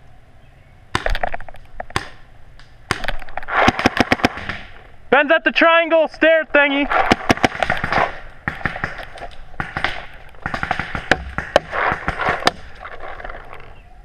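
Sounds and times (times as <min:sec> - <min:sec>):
paintball markers firing: 0:01.0 - 0:04.8, 0:06.9 - 0:12.8.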